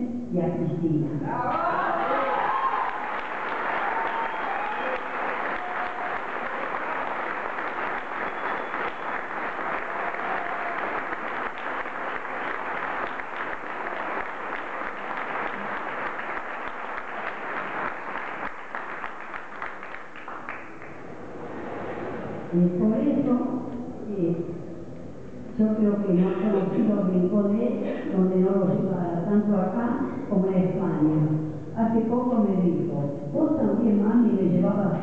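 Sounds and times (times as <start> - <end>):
audience applauding: 1.9 - 21.4.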